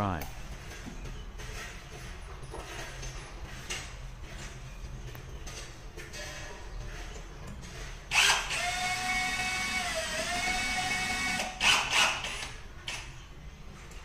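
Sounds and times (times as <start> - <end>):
cordless drill whining: 8.1 - 12.5.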